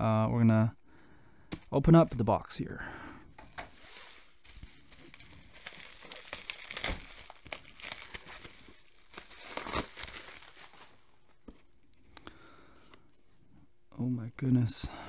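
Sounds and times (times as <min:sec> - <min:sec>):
packaging rustling and scraping: 0:03.4 - 0:11.4.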